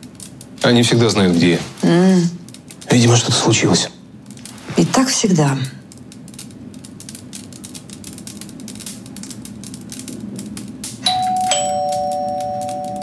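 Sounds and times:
two-note doorbell chime: 0:11.0 - 0:13.0.

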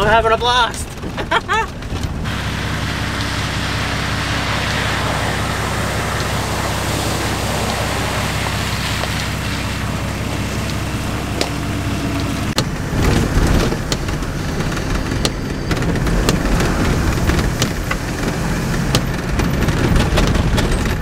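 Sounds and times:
tyres on wet gravel: 0:00.9 - 0:21.0
rain falling: 0:01.2 - 0:21.0
diesel engine idling: 0:02.2 - 0:21.0
knocks and rattles in cab: 0:10.4 - 0:21.0.

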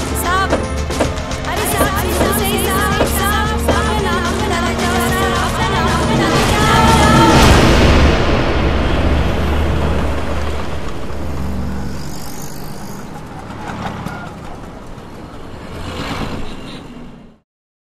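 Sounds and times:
car engine and road noise: 0:00.0 - 0:17.4
short rush of noise: 0:06.3 - 0:13.4.

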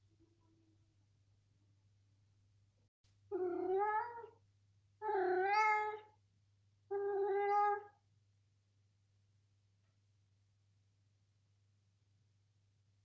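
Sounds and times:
cat meowing: 0:03.3 - 0:04.4, 0:05.0 - 0:06.1, 0:06.9 - 0:08.0.

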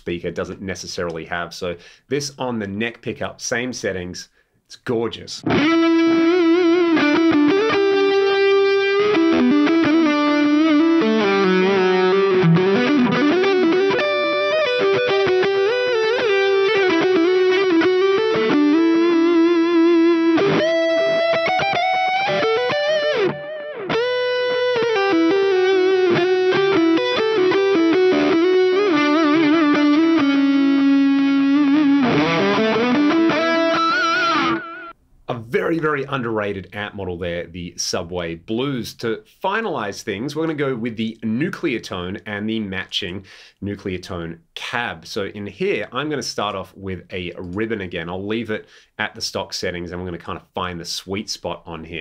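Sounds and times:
overdriven electric guitar lead: 0:05.4 - 0:35.0.

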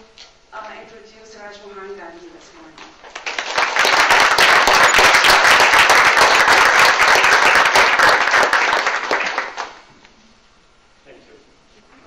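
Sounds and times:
audience applauding: 0:03.1 - 0:09.9.

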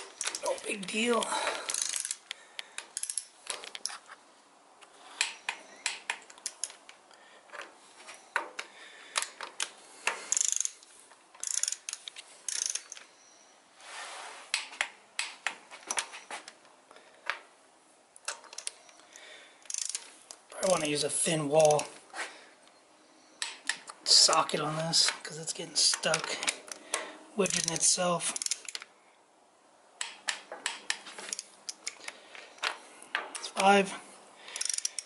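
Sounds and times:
ratcheting wrench clicking: 0:00.2 - 0:00.5, 0:01.7 - 0:04.0, 0:09.2 - 0:10.8, 0:11.4 - 0:13.0, 0:19.6 - 0:20.9, 0:27.5 - 0:28.8, 0:30.0 - 0:32.1, 0:34.5 - 0:35.0.

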